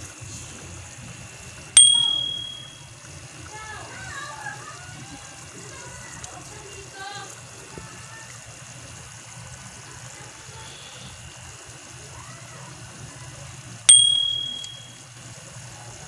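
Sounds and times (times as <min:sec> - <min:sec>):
pan simmering with low hiss: 0:00.0 - 0:16.0
sharp metallic ding: 0:01.8 - 0:02.8, 0:13.9 - 0:15.0.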